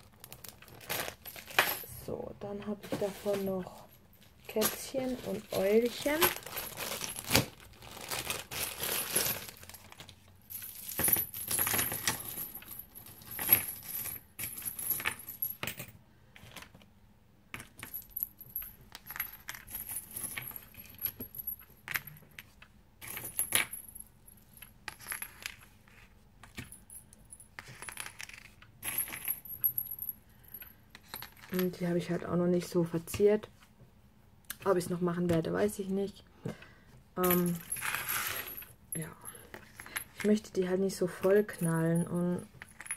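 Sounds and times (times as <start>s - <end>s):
metal keychains clinking on paper: 37.2s - 40.5s.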